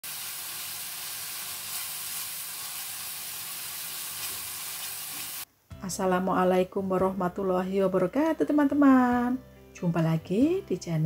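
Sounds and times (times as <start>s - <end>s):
paste sizzling in oil: 0.0s - 5.5s.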